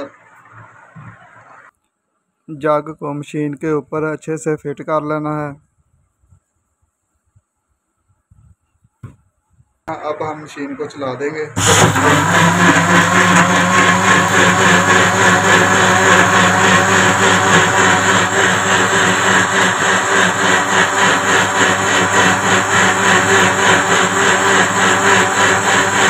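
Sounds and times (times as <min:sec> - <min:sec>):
blender motor whirring: 0:10.9 - 0:26.0.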